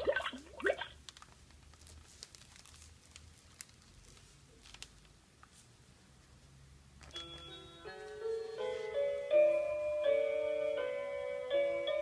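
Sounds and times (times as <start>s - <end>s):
plush fabric rustling and crinkling: 1.0s - 5.9s.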